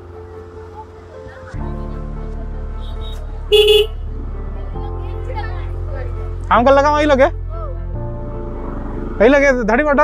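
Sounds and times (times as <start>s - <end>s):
background music: 0.0s - 10.0s
vehicle horn honk: 2.8s - 4.0s.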